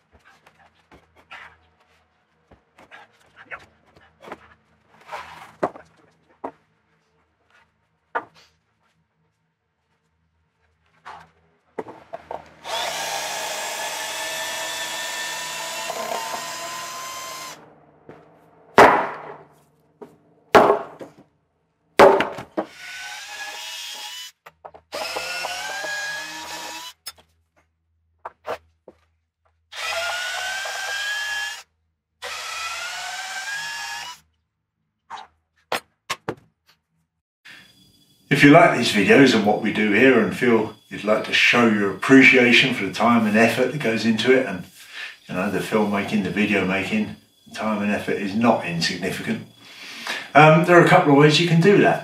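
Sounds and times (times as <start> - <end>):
cordless drill driving screws: 12.6 - 17.6, 22.6 - 27.3, 29.7 - 34.2
loud wooden knocks: 18.8 - 19.5, 20.5 - 21.2, 22.0 - 22.8.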